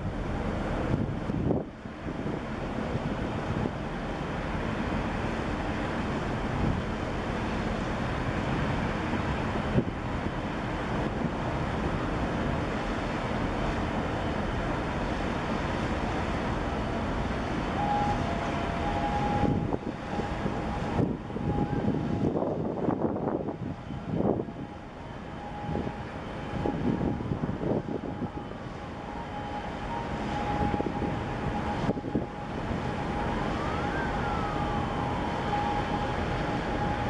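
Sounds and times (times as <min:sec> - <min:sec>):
wind on microphone: 0:00.0 - 0:03.8, 0:17.7 - 0:37.0
ship engine rumble: 0:00.0 - 0:37.0.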